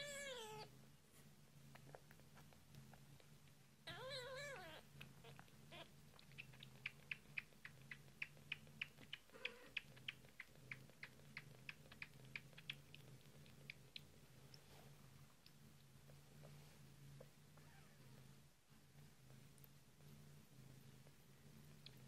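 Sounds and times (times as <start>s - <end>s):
kitten sucking clicks: 6.2s - 14.1s.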